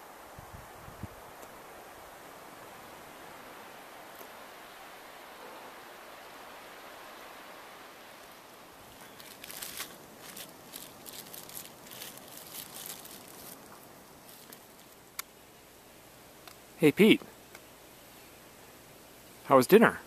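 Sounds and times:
faint steady hiss: 0:00.0 - 0:20.0
plastic bag crinkling: 0:09.0 - 0:15.0.

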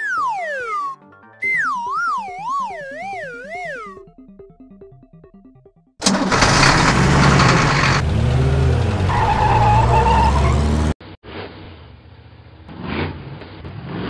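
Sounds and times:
quiet engine: 0:06.0 - 0:10.9
cartoon engine revving: 0:06.0 - 0:11.0
tires screeching: 0:06.0 - 0:11.9.

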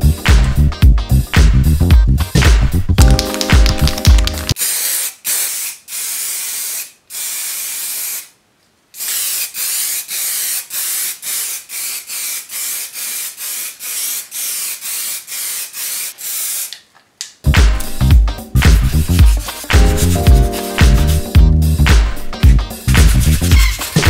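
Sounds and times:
aerosol spray can hissing: 0:03.2 - 0:08.4, 0:09.0 - 0:16.8, 0:18.7 - 0:21.3, 0:22.6 - 0:24.0.

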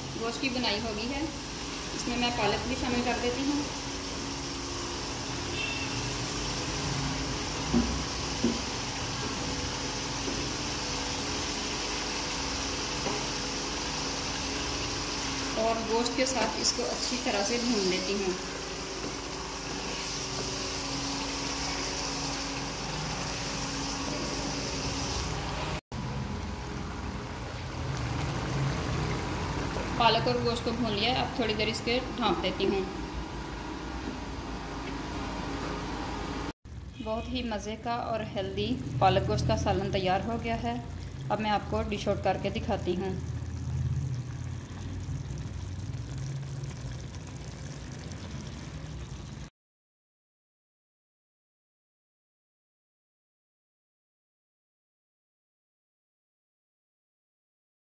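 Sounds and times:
food sizzling in oil: 0:00.0 - 0:33.8, 0:38.9 - 0:49.5
stew simmering and bubbling: 0:03.7 - 0:30.0, 0:40.5 - 0:49.5
curry bubbling in a pot: 0:40.5 - 0:49.5.

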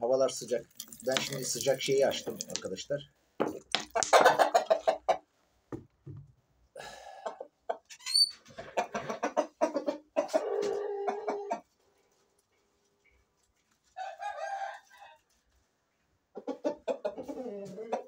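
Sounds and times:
roosters clucking and calling: 0:03.8 - 0:05.4, 0:07.1 - 0:11.8, 0:16.2 - 0:18.0.

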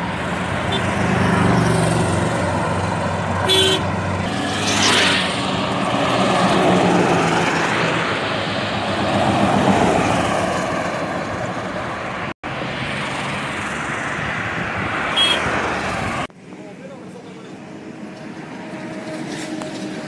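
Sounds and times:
diesel engine drone: 0:00.0 - 0:14.3.

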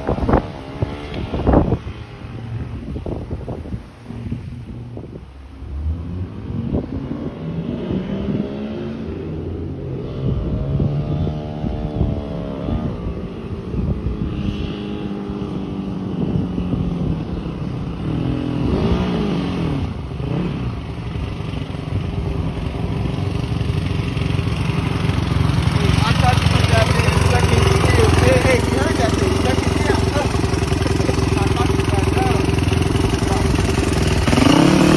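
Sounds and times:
dirt bike engine revving: 0:18.1 - 0:20.7, 0:23.4 - 0:34.9.

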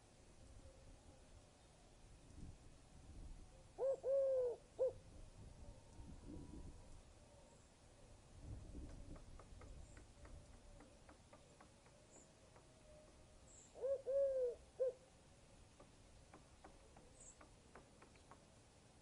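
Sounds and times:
faint scattered ticks: 0:15.6 - 0:19.0.

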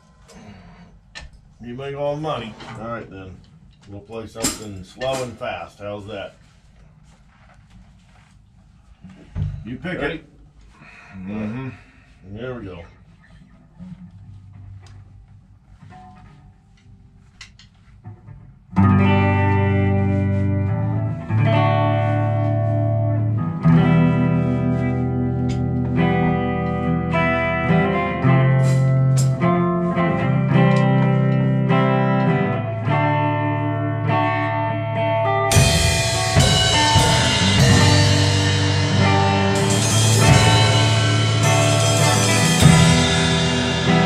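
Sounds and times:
drum kit with cymbals: 0:04.4 - 0:05.4, 0:27.2 - 0:31.2, 0:35.5 - 0:44.0
electric guitar chords: 0:18.3 - 0:44.0.

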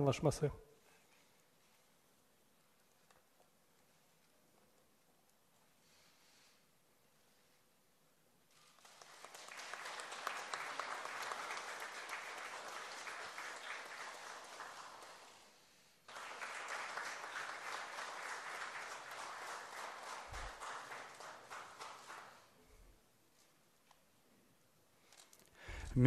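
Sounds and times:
audience applauding: 0:08.5 - 0:22.6.

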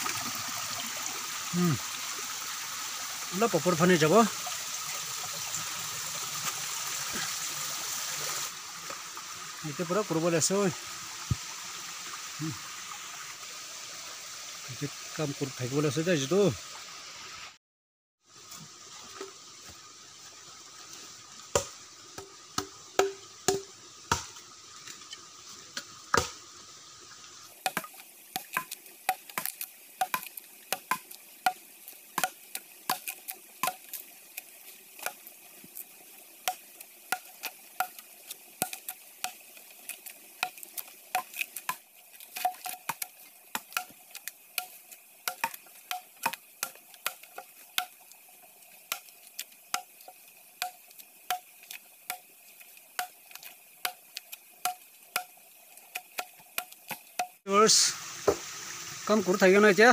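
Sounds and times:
axe chopping wood: 0:21.6 - 0:24.3, 0:26.1 - 0:26.4, 0:27.6 - 0:31.1, 0:32.2 - 0:34.0.

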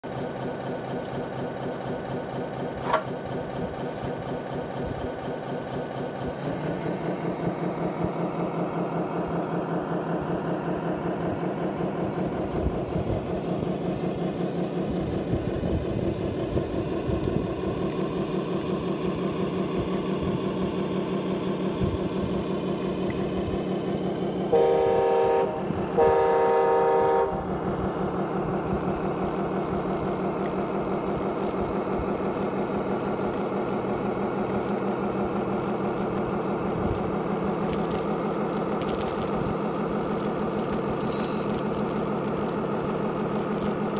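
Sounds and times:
simulated diesel engine: 0:00.0 - 0:43.9
truck horn blasts: 0:24.5 - 0:27.5.

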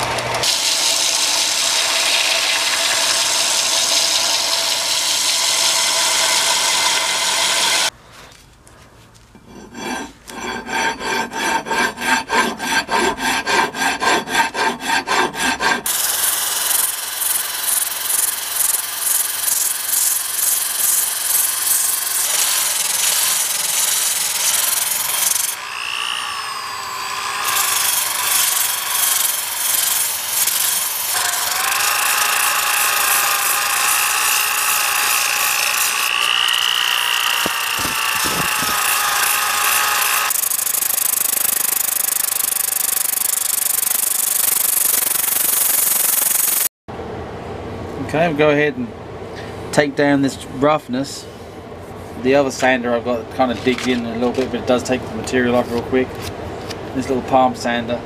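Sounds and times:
belt sander grinding wood: 0:00.0 - 0:08.0, 0:09.4 - 0:46.7
disc sander on wood: 0:00.0 - 0:08.0, 0:09.7 - 0:46.7
hand rasp scraping wood: 0:09.4 - 0:16.0, 0:26.9 - 0:40.4.

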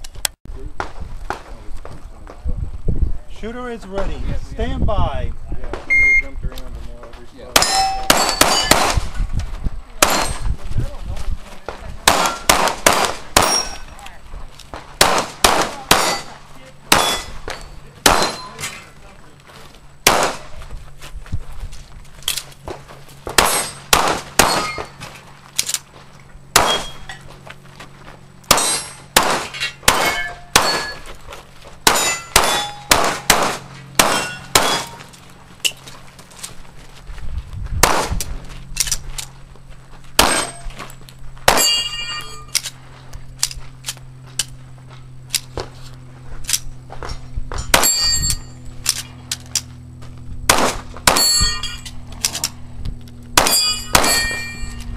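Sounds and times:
steel target plates clanging: 0:07.6 - 0:08.8, 0:13.4 - 0:13.9, 0:16.0 - 0:19.0, 0:23.4 - 0:25.0, 0:28.5 - 0:31.2, 0:31.9 - 0:33.3, 0:34.0 - 0:35.8, 0:41.5 - 0:42.7, 0:47.6 - 0:49.1, 0:51.1 - 0:52.4, 0:53.4 - 0:54.9
rapid pistol shots: 0:07.6 - 0:09.1, 0:10.0 - 0:10.4, 0:12.0 - 0:13.7, 0:15.0 - 0:17.4, 0:18.0 - 0:18.5, 0:20.0 - 0:20.5, 0:23.3 - 0:24.9, 0:26.5 - 0:27.0, 0:28.5 - 0:31.0, 0:31.8 - 0:35.0, 0:40.2 - 0:40.6, 0:50.5 - 0:51.3, 0:53.4 - 0:54.4.

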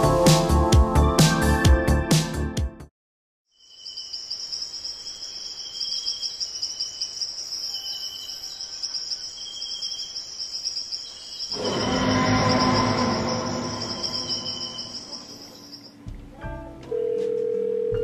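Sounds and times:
crickets chirping: 0:03.5 - 0:16.0
lower trill: 0:11.5 - 0:15.7.

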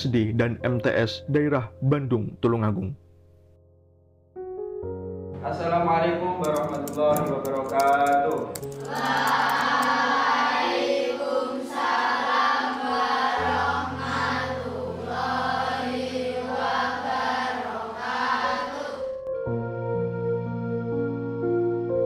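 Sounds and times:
choir-like chanting voices: 0:08.8 - 0:19.2.

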